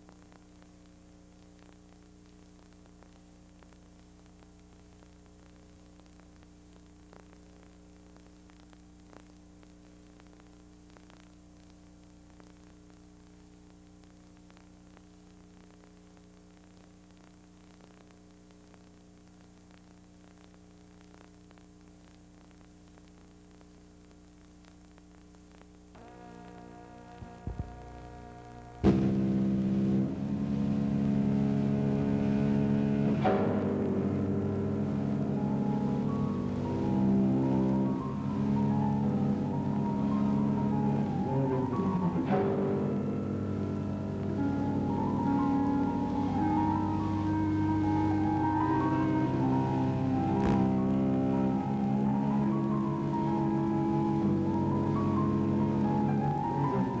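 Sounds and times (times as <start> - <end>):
low hum and hiss: 0.0 - 57.0
music: 26.0 - 57.0.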